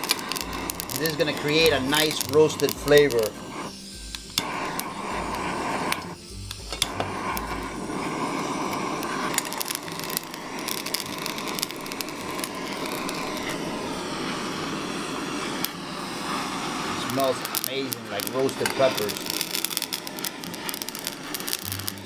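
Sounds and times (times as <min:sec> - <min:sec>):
sharp clicks and crackles: 0:00.0 - 0:03.3, 0:08.7 - 0:13.6, 0:17.0 - 0:22.0
blowtorch flame hissing: 0:00.0 - 0:22.0.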